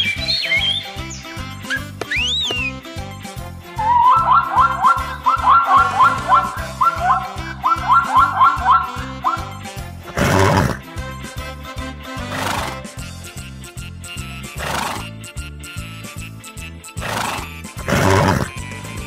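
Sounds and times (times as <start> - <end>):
background music with steady beat: 0.0 - 19.0
zebra calling: 3.8 - 10.8, 17.0 - 18.6.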